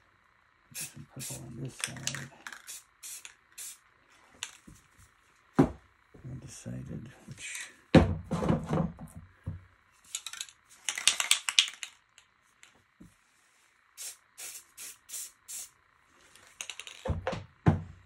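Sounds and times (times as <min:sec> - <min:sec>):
spray-paint can hissing: 0:00.7 - 0:01.4, 0:02.0 - 0:03.8, 0:14.0 - 0:15.8.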